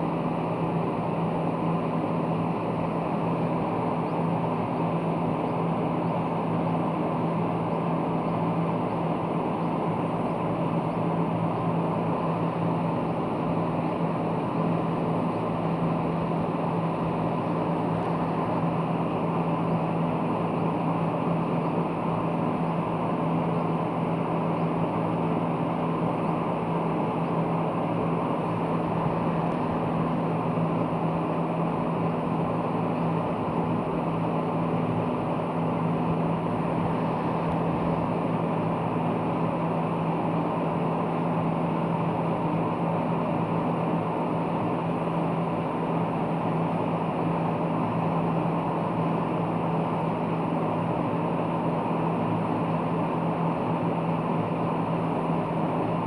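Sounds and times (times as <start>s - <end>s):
machine hum: 0.0s - 56.0s.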